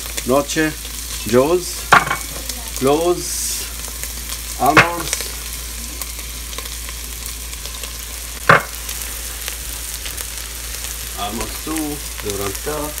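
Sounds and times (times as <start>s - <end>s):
food sizzling in oil: 0.0s - 13.0s
loud knock: 8.5s - 8.7s.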